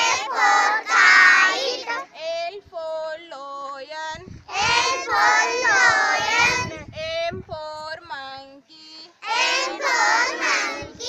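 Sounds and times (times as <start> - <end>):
children chanting in unison: 0.0 - 2.2, 4.5 - 6.9, 9.2 - 11.0.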